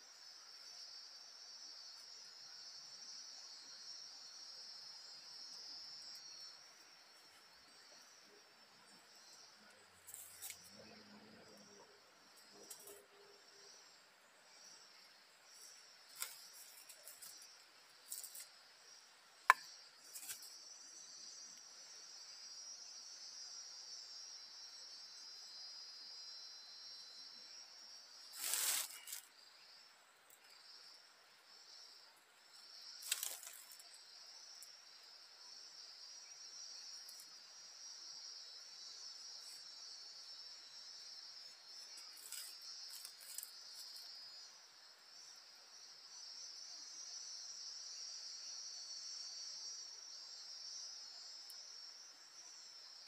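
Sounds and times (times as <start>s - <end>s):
insects chirping: 0.0s - 53.0s
rustling: 28.3s - 29.3s.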